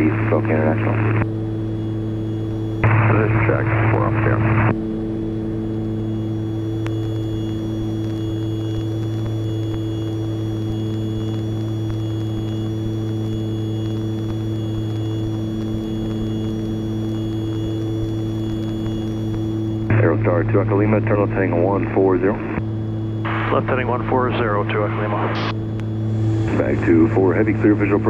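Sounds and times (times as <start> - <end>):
faint high whine: 0.0 - 28.0
aircraft engines droning: 19.6 - 28.0.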